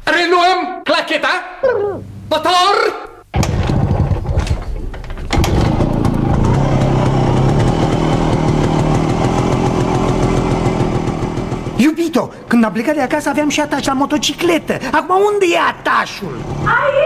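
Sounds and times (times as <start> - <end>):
motorcycle engine starting: 3.4 - 12.0.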